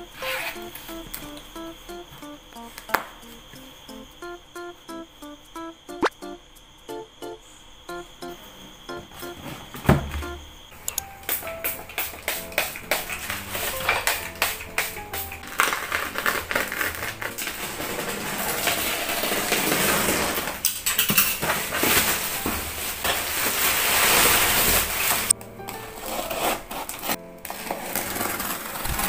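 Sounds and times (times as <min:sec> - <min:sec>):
scratching at packing tape: 0:00.2 - 0:00.7, 0:11.3 - 0:20.6, 0:23.0 - 0:29.0
scissors snipping bubble wrap: 0:11.3 - 0:17.5, 0:21.7 - 0:29.0
plastic crinkling and rustling: 0:15.2 - 0:29.0.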